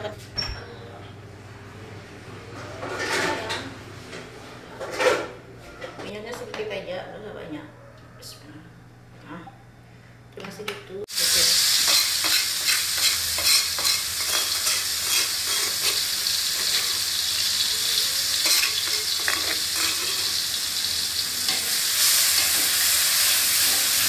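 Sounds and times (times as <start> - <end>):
food sizzling in hot oil: 11.1 - 24.0
metal spatula scraping wok: 11.9 - 17.2, 17.9 - 20.5.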